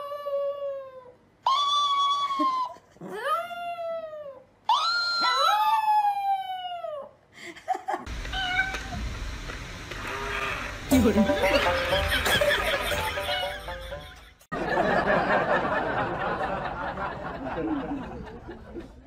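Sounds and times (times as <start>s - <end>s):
steady hiss: 8.1s - 13.7s.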